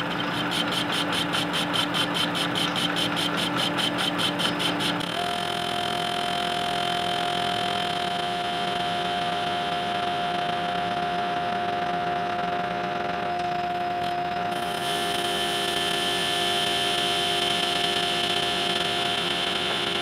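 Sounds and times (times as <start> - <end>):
metal lathe cutting: 0.0 - 10.0, 14.5 - 20.0.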